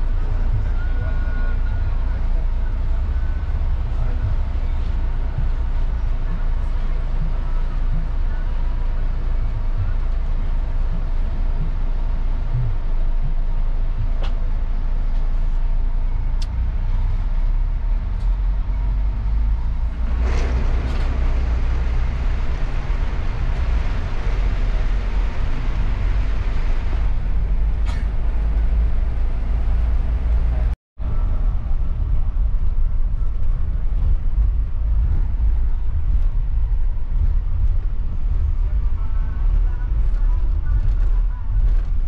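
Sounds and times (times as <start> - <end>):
bus engine and road rumble: 0.0 - 42.0.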